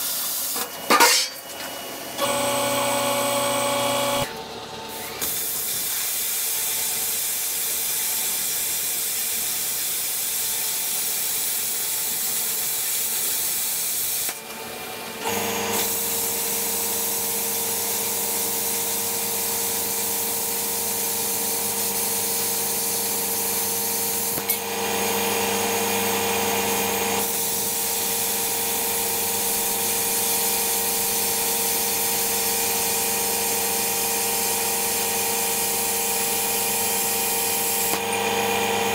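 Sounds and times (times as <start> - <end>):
plasma cutter hissing: 5.0 - 14.3, 15.7 - 24.6, 27.2 - 38.0.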